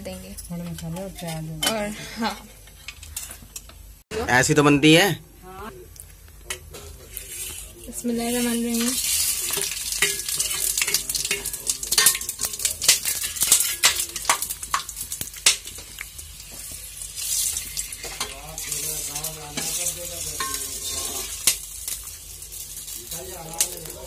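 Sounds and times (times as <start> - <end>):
spices sizzling in hot oil: 6.5 - 24.0
spatula scraping metal pot: 19.6 - 21.5.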